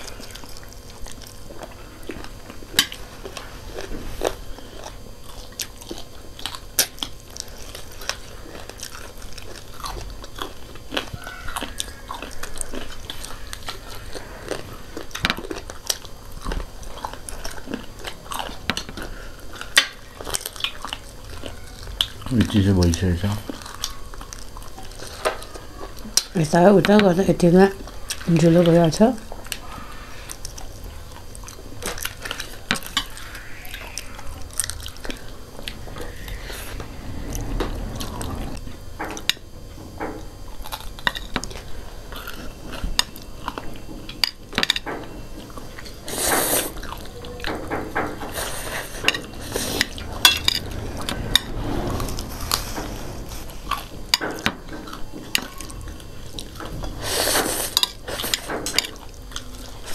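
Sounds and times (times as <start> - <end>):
biting and chewing: 0.0 - 26.3, 40.4 - 51.9.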